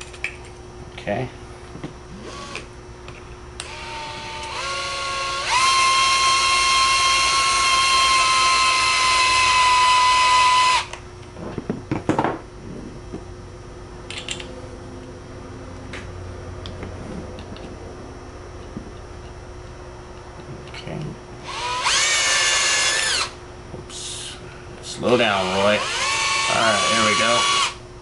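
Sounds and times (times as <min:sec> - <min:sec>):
cordless drill motor whining: 0:02.2 - 0:02.7, 0:03.6 - 0:11.0, 0:21.4 - 0:23.4, 0:25.2 - 0:27.8.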